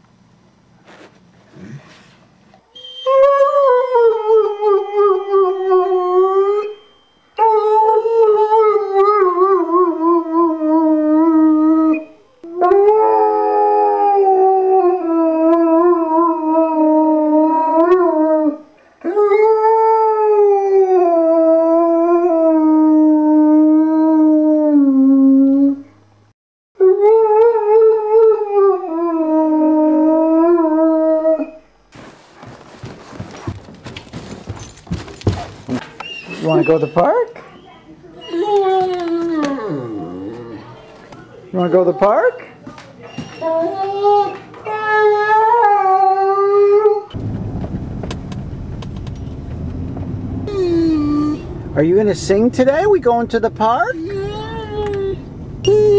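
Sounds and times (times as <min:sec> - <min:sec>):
dog howling: 0:02.8 - 0:06.8, 0:07.4 - 0:25.9, 0:26.8 - 0:31.6, 0:35.9 - 0:41.0, 0:41.6 - 0:47.2, 0:50.4 - 0:51.6, 0:53.9 - 0:55.9.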